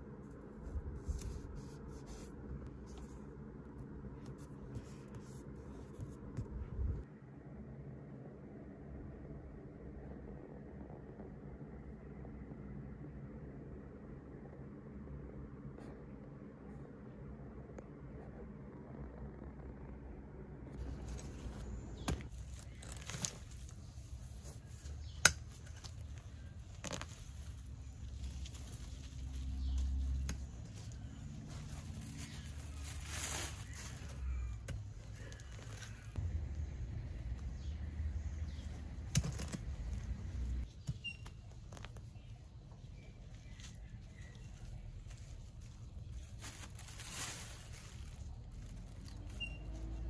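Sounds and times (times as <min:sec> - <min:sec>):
low outdoor rumble: 0:00.0 - 0:50.0
steady low hum: 0:00.0 - 0:50.0
paper rustling and scratching: 0:00.4 - 0:03.4, 0:04.0 - 0:06.8, 0:20.8 - 0:36.2.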